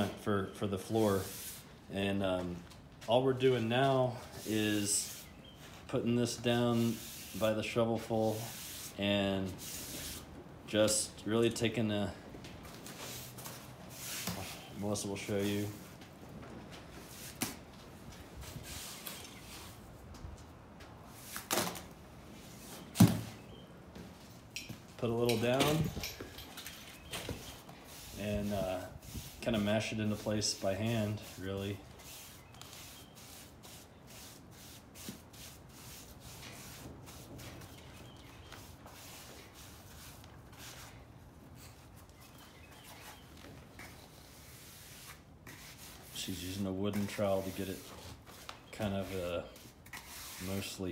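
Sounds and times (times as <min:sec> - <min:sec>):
faint shuffling: 0:00.0 - 0:21.5
hands rubbing wet clay: 0:41.6 - 0:50.8
trowel scraping over mud: 0:44.1 - 0:50.9.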